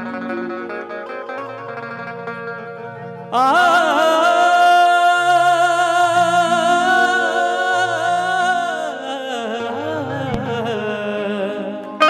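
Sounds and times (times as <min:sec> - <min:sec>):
man singing long note: 0:03.3 - 0:12.0.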